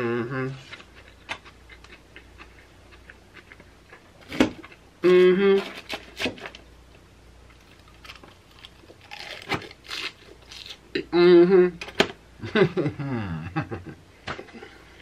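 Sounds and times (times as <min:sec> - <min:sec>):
person humming mm: 0:00.0 - 0:00.8, 0:05.0 - 0:05.8, 0:11.0 - 0:11.8.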